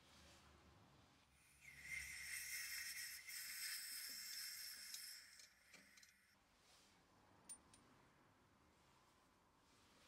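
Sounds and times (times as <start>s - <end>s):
spray hissing through nozzle: 1.6s - 5.4s.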